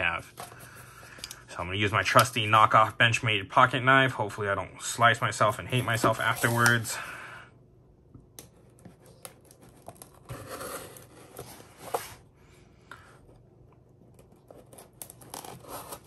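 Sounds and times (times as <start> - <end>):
cardboard box rustling: 9.5 - 12.3
knife cutting packing tape: 14.5 - 16.0.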